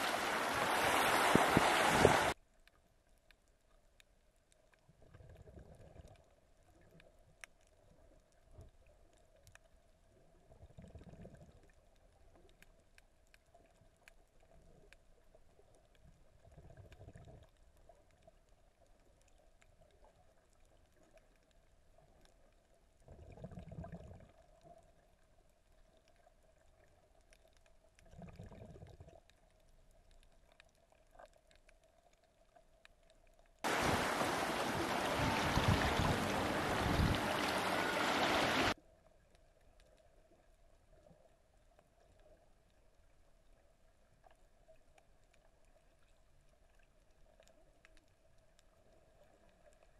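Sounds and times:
underwater water surges: 0.0 - 2.4, 33.6 - 38.8
wind and sea rushing: 0.0 - 2.4, 33.7 - 38.8
muffled underwater hum: 33.7 - 38.7.

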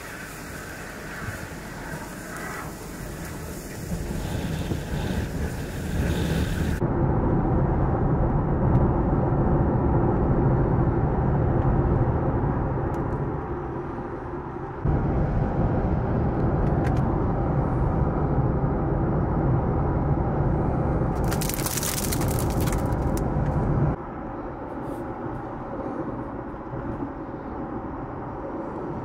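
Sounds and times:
harsh hiss: 0.0 - 6.8
wind gusts buffeting microphone: 1.1 - 13.4.

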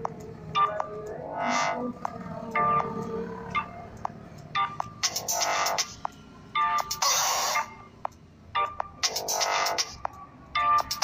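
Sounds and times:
electronic synthesizer music: 0.0 - 11.0.

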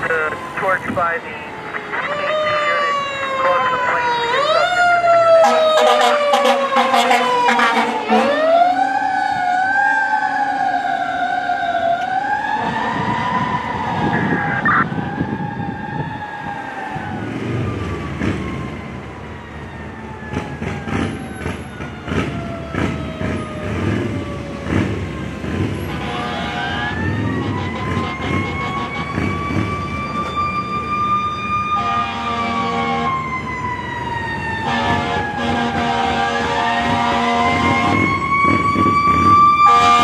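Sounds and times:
fire engine siren wailing: 0.0 - 40.0
heavy truck engine: 16.9 - 40.0
short horn blasts: 39.7 - 40.0.

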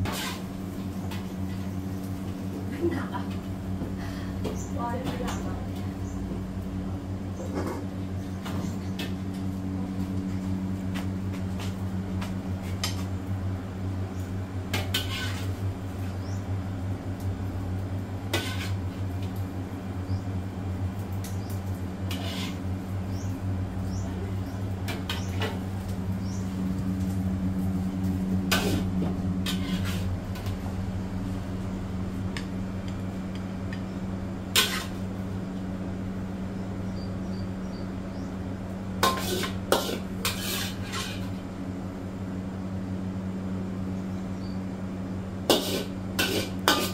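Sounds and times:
metal kitchenware clanking: 39.0 - 41.3, 45.5 - 46.9.

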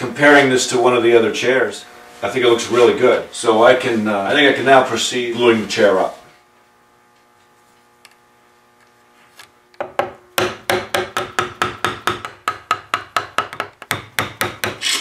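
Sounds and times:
hammer tapping wood chisel: 9.8 - 14.8.

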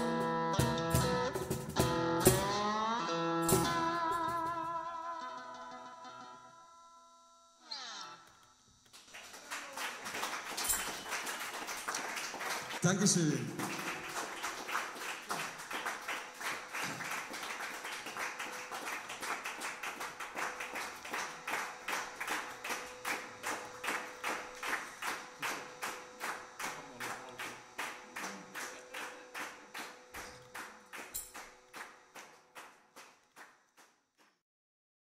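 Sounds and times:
audience rhythmic clapping: 8.9 - 34.4.

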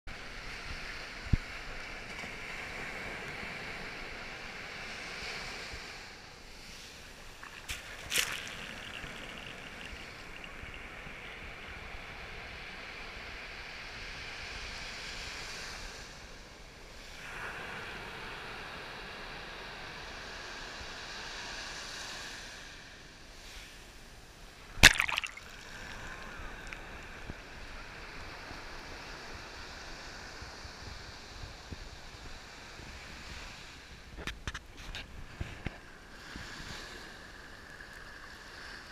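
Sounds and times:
waves breaking on a beach: 0.1 - 38.9
loud water splash on microphone: 7.3 - 11.2, 24.8 - 27.3.

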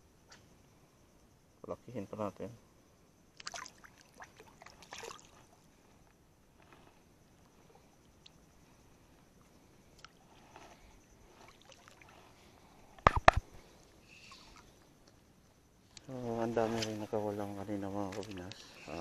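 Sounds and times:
fish splashing in water: 3.4 - 5.4
faint water and handling sounds: 3.4 - 8.4, 9.3 - 15.3, 15.9 - 19.0.

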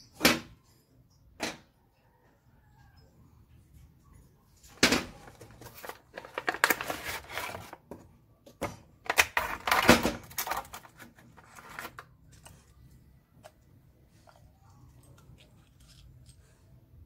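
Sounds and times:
plastic packaging crinkling: 5.2 - 7.8, 9.1 - 12.8
cardboard box being opened: 5.3 - 7.8.

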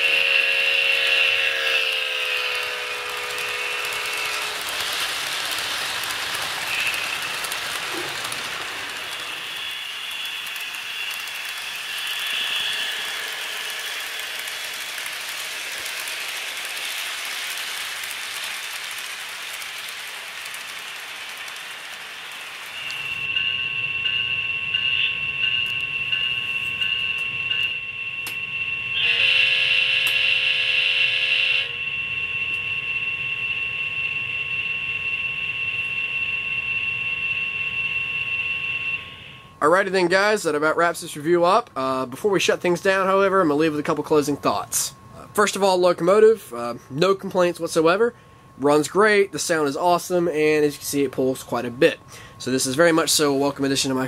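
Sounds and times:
model train horn: 0.0 - 5.0, 6.6 - 14.4, 22.8 - 39.6
steady hum with high tones: 0.0 - 54.0
model train clattering on track: 1.0 - 28.4.

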